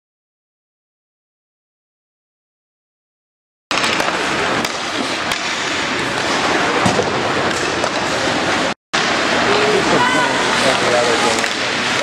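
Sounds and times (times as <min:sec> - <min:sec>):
hockey sticks and puck clacking: 0:03.7 - 0:09.5, 0:10.4 - 0:12.0
crowd noise: 0:03.7 - 0:12.0
skates on ice: 0:03.7 - 0:12.0.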